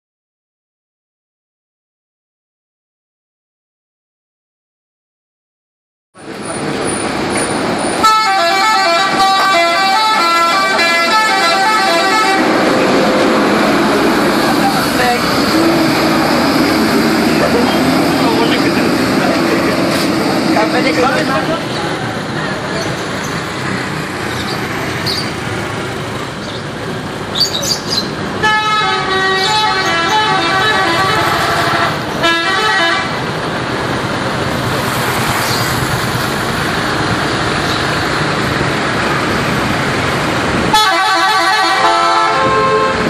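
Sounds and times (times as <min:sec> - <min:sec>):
road traffic: 0:06.2 - 0:43.0
street noise: 0:06.2 - 0:43.0
musical air horn tune: 0:08.0 - 0:12.7, 0:28.4 - 0:33.1, 0:40.7 - 0:43.0.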